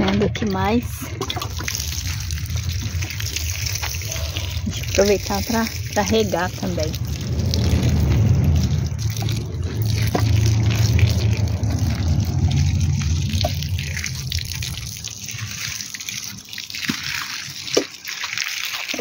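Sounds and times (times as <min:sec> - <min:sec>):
water pouring onto soil: 0:00.5 - 0:19.0.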